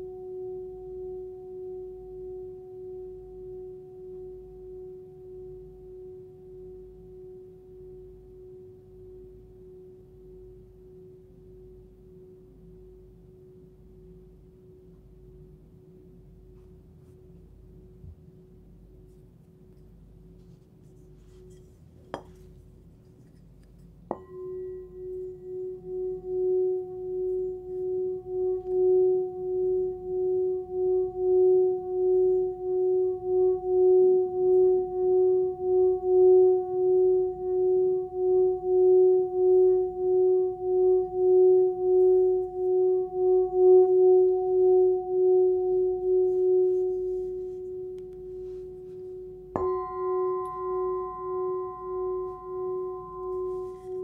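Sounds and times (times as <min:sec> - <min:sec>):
singing bowl steady tone: 0:00.0 - 0:54.0
singing bowl struck: 0:24.1 - 0:54.0.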